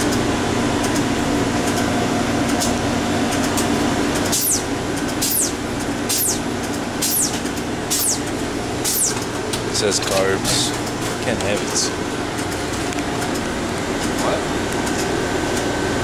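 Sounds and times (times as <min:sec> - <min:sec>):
frozen-drink machine humming: 0:00.0 - 0:16.0
high falling chirp: 0:04.4 - 0:08.3, 0:08.9 - 0:09.2.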